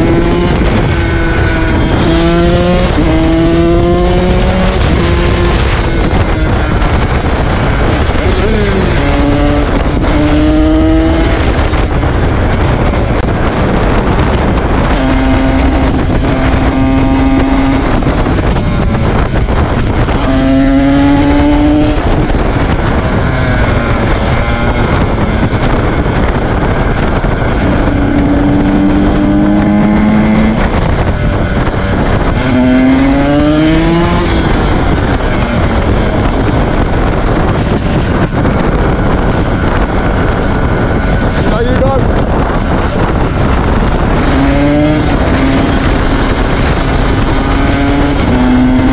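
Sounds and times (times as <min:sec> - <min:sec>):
motorcycle engine revving: 0:00.0 - 0:48.9.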